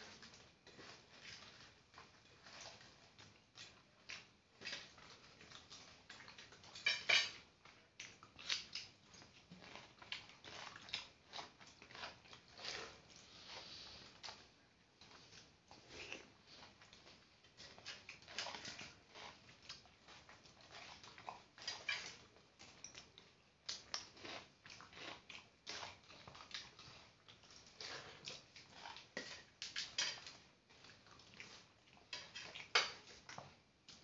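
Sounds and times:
chewing and mouth smacks: 0:07.6 - 0:12.9, 0:15.0 - 0:34.0
fingers working rice in bowl: 0:08.4 - 0:14.4.

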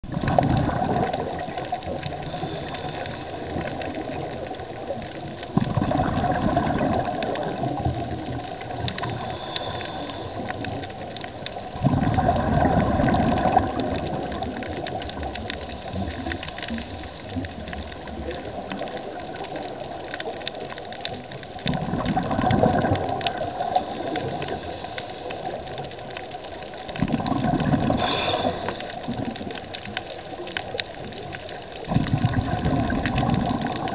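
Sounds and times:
faint crackling clicks: 0:00.0 - 0:33.9
underwater exhaled bubbles: 0:00.0 - 0:33.9
diver breathing: 0:09.0 - 0:10.9, 0:27.8 - 0:29.2.

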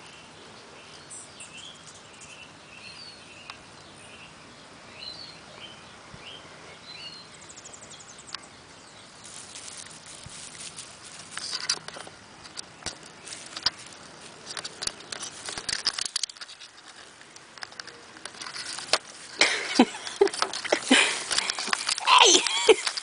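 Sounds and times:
grass rustling: 0:07.4 - 0:23.0
small clicks: 0:09.3 - 0:19.0.

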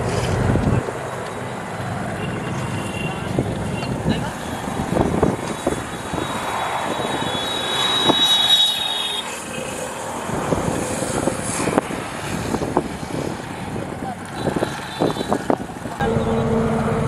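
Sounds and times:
vehicle engine running: 0:16.0 - 0:17.0.

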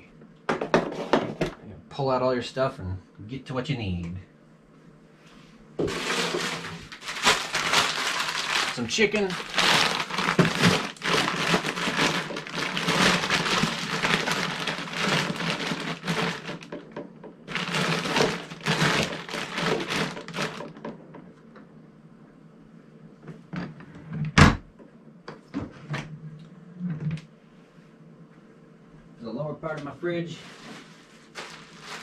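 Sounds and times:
plastic packaging crinkling: 0:05.8 - 0:16.8, 0:17.5 - 0:20.8, 0:30.4 - 0:32.0.

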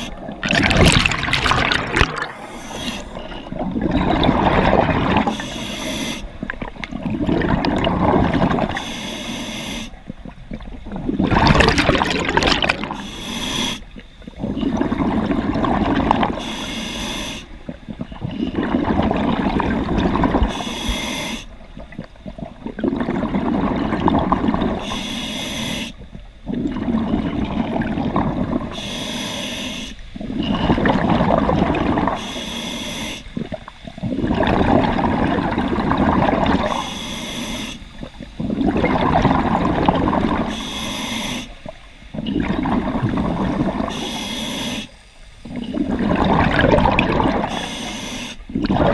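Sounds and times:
exhaled bubbles rushing: 0:00.0 - 0:05.3, 0:06.4 - 0:08.8, 0:10.2 - 0:13.0, 0:14.4 - 0:16.4, 0:17.6 - 0:20.5, 0:21.8 - 0:24.8, 0:26.5 - 0:28.7, 0:30.4 - 0:32.2, 0:33.4 - 0:36.7, 0:38.4 - 0:40.5, 0:42.2 - 0:43.9, 0:45.5 - 0:47.5, 0:48.5 - 0:48.9
regulator hiss on inhale: 0:02.4 - 0:03.2, 0:05.3 - 0:06.4, 0:08.7 - 0:10.0, 0:12.9 - 0:14.0, 0:16.4 - 0:17.6, 0:20.5 - 0:21.6, 0:24.8 - 0:26.0, 0:28.7 - 0:30.2, 0:32.2 - 0:33.4, 0:36.7 - 0:38.0, 0:40.5 - 0:41.7, 0:43.9 - 0:45.5, 0:47.5 - 0:48.5.

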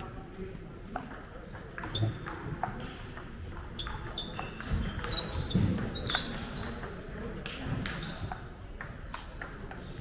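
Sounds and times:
shoes squeaking on floor: 0:01.8 - 0:02.2, 0:03.8 - 0:06.8, 0:07.9 - 0:08.4.

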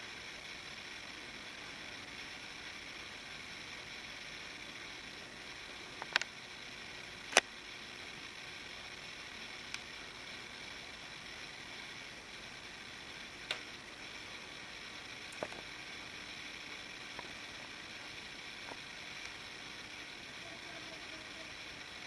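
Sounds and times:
steady background hiss: 0:00.0 - 0:22.0
sharp clicks: 0:06.0 - 0:06.3, 0:13.4 - 0:13.7.

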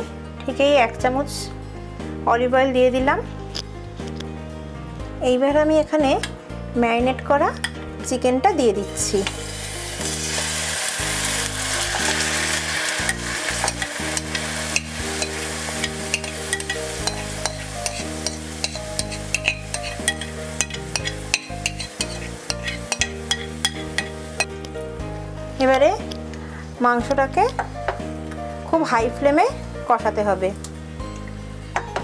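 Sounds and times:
background music: 0:00.0 - 0:32.0
chicken sizzling in oil: 0:09.0 - 0:24.6.

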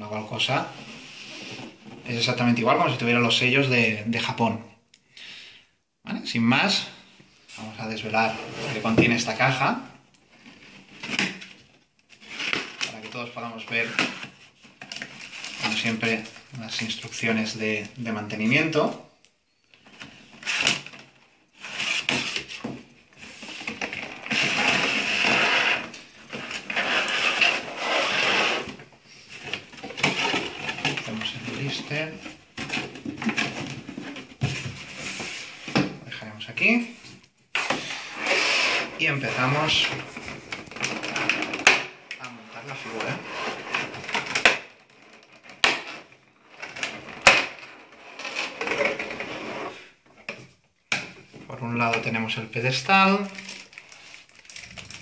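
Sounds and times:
cardboard scraping: 0:00.6 - 0:02.3, 0:07.6 - 0:09.6, 0:10.4 - 0:17.8, 0:20.1 - 0:35.9, 0:36.8 - 0:50.0
plastic crackling: 0:39.1 - 0:49.3, 0:51.8 - 0:55.0.

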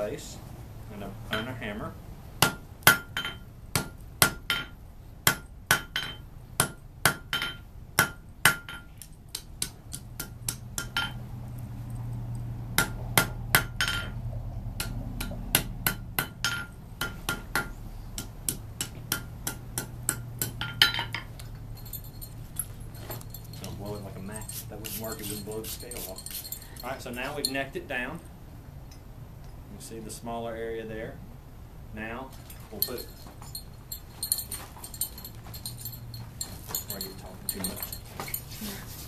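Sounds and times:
hammer striking metal on anvil: 0:02.4 - 0:11.2, 0:12.8 - 0:14.2, 0:14.8 - 0:21.3.

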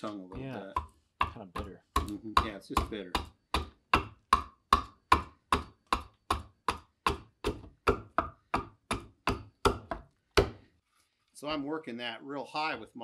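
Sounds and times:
adze chopping into wood: 0:00.4 - 0:10.6.

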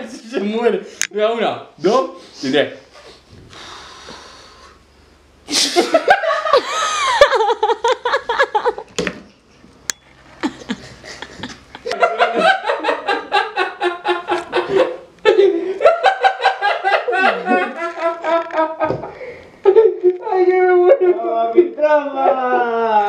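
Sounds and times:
hearty laughter: 0:05.5 - 0:08.9, 0:10.3 - 0:19.3.

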